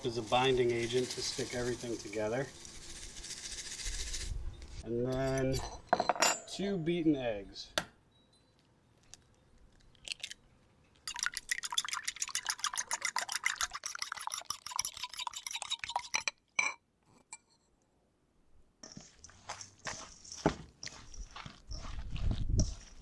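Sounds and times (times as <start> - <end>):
fork beating eggs in bowl: 11.1 - 16.3, 18.8 - 23.0.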